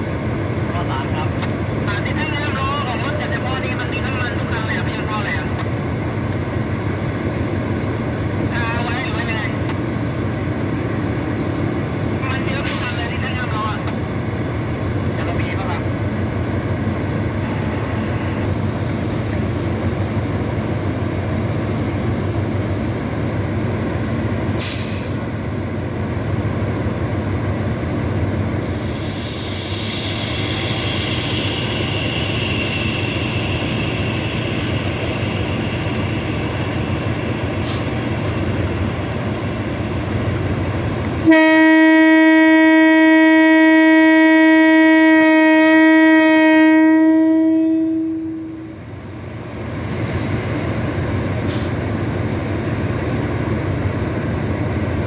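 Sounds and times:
diesel locomotive idling: 0:00.0 - 0:55.0
air hissing: 0:24.6 - 0:25.2, 0:28.6 - 0:40.2, 0:49.6 - 0:52.5
loud locomotive horn blast: 0:41.2 - 0:48.7.

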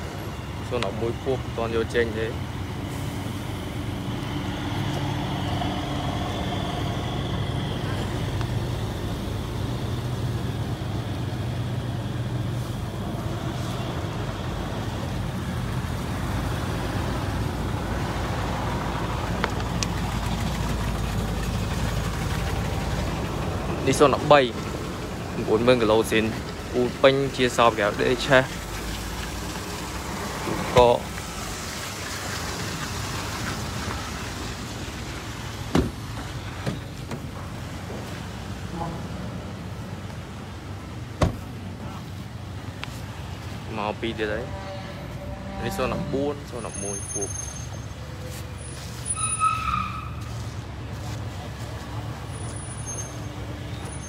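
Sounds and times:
car engine idling: 0:17.1 - 0:31.5
car door knock: 0:35.7 - 0:36.0, 0:41.2 - 0:41.4.

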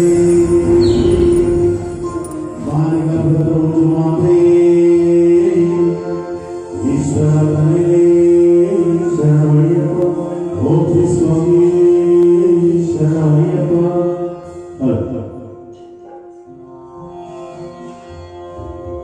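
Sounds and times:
steady drone: 0:00.0 - 0:12.0
devotional chanting: 0:00.0 - 0:16.2.

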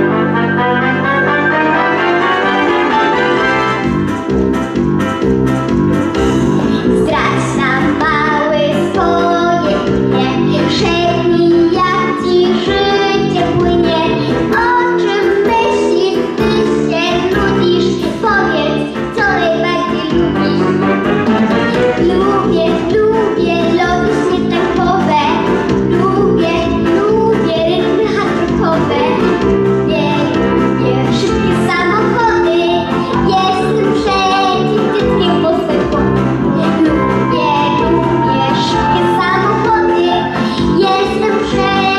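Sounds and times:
instrumental backing track: 0:00.0 - 0:41.9
boy singing into a microphone: 0:07.1 - 0:20.7, 0:29.9 - 0:41.9.

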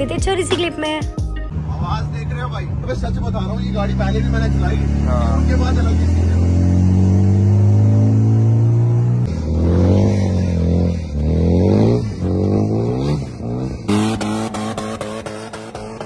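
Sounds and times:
music with regular beat: 0:00.0 - 0:01.5
sports car engine revving: 0:01.5 - 0:16.0.

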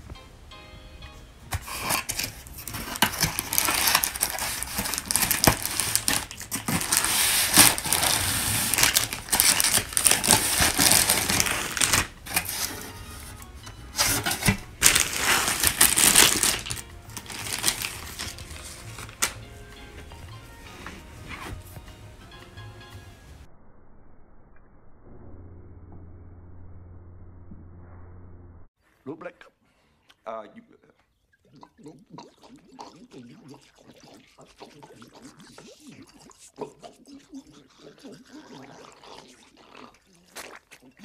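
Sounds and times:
plastic packaging crinkling: 0:01.6 - 0:12.9, 0:14.0 - 0:19.4.

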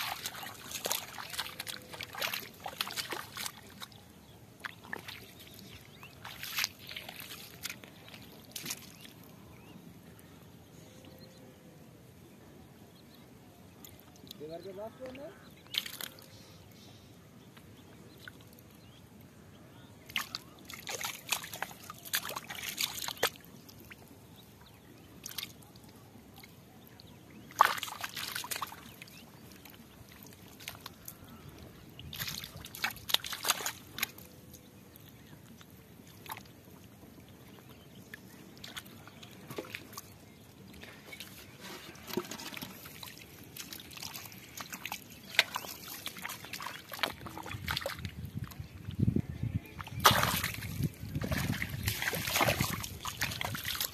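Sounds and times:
hands splashing in muddy water: 0:00.0 - 0:03.9, 0:04.6 - 0:09.1, 0:15.7 - 0:16.2, 0:20.1 - 0:23.5, 0:27.4 - 0:31.3, 0:32.1 - 0:34.3, 0:40.8 - 0:48.6, 0:49.8 - 0:53.9
water trickling: 0:00.0 - 0:09.2, 0:20.1 - 0:53.9.

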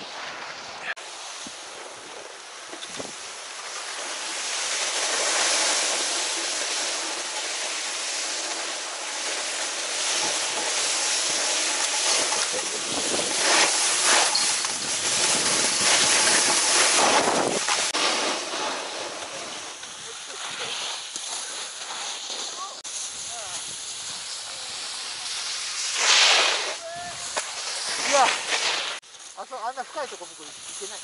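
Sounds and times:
ski scraping over snow: 0:00.0 - 0:31.0
wind on microphone: 0:12.5 - 0:17.8.

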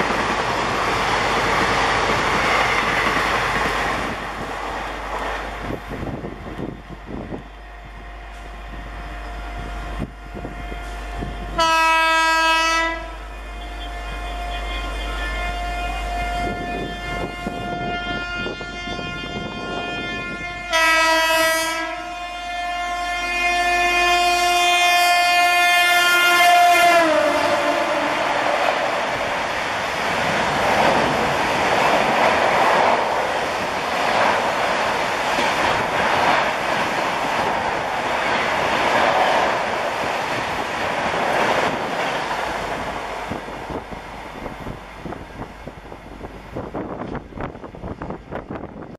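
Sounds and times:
train coaches rushing past: 0:00.0 - 0:48.9
locomotive horn blast: 0:07.6 - 0:28.8.

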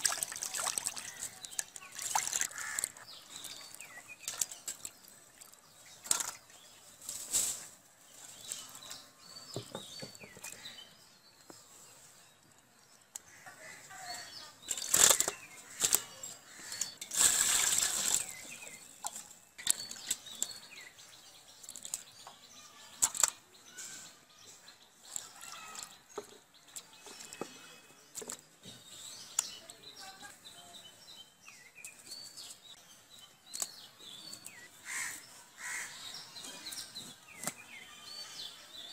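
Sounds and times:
water splashing in bowl: 0:00.0 - 0:06.4, 0:17.1 - 0:18.5.

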